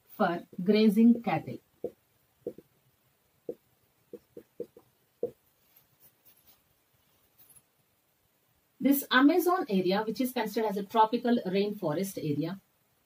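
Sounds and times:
marker squeaking on whiteboard: 4.2 - 5.4.

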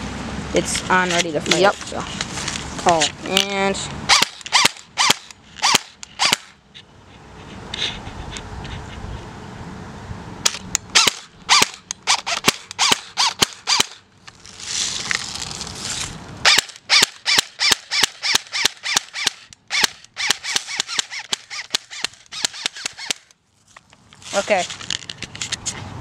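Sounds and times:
bb gun firing: 4.1 - 6.5, 10.4 - 14.0, 16.5 - 23.3.

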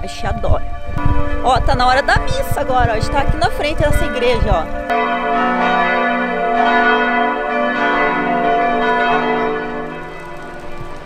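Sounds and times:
church bells pealing: 0.0 - 11.0.

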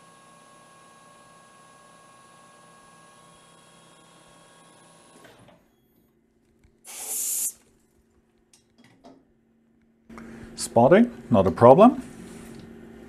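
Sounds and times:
lathe hum and whine: 0.0 - 5.2
compressed air hiss: 6.9 - 7.6.

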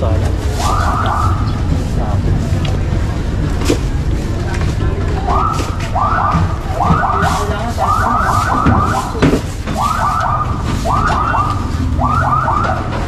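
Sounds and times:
steady low rumble: 0.0 - 12.9
electronic alarm whoops: 9.8 - 12.8.

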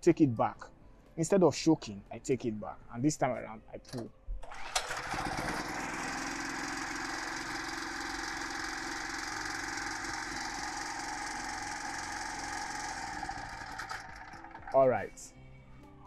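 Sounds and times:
portable generator engine running: 4.4 - 15.1.

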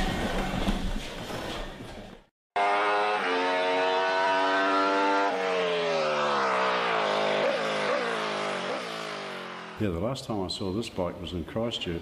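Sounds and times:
motorcycle engine revving high: 2.7 - 10.0.

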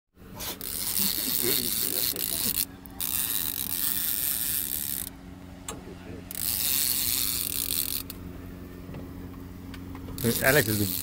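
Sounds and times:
fishing reel ratchet clicking: 0.6 - 5.2, 6.3 - 8.2, 10.0 - 11.0.

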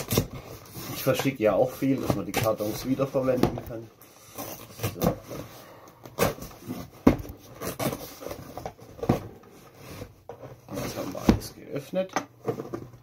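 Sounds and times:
packing tape being cut: 0.0 - 1.0, 7.5 - 8.4
tape and box rustling: 0.0 - 13.0.

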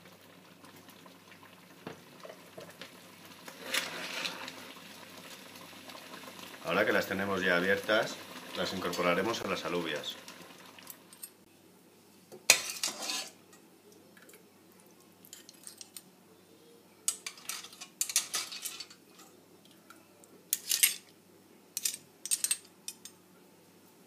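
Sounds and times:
metal spoon clinking and scraping: 12.5 - 13.4, 17.1 - 19.3, 20.5 - 21.1, 21.8 - 23.2.

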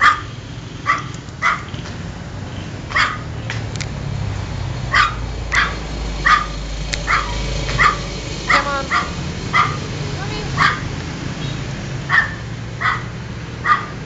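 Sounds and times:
small dog barking: 0.0 - 1.7, 2.9 - 3.3, 4.9 - 10.9, 12.1 - 14.0.

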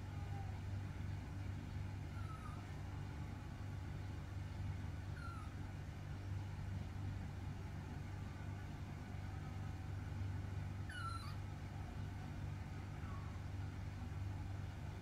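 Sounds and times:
steady low hum: 0.0 - 15.0
baby monkey squeaks: 5.2 - 5.6, 10.9 - 11.4.

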